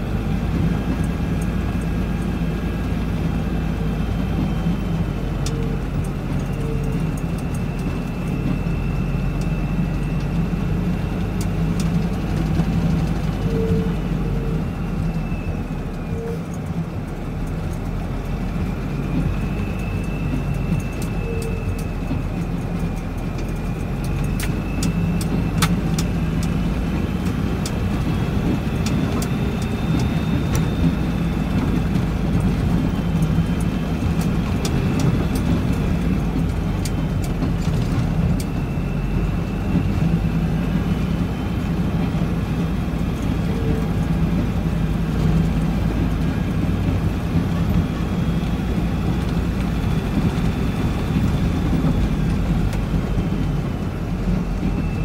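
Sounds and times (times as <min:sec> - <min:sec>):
truck engine rumble: 0:00.0 - 0:55.0.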